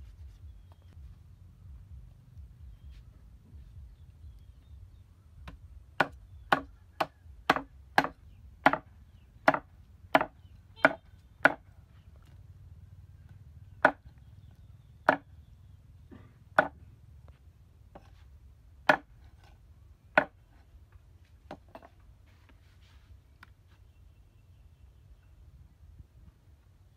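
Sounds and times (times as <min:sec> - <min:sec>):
cleaver chopping on wooden block: 0:05.4 - 0:11.7, 0:13.8 - 0:14.1, 0:15.0 - 0:15.3, 0:16.6 - 0:16.8, 0:18.8 - 0:19.3, 0:20.1 - 0:20.4.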